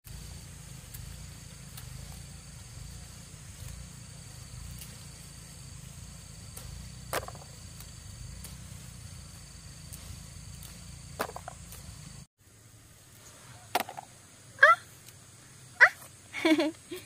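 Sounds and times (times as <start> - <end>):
insects chirping: 0.1 - 17.0.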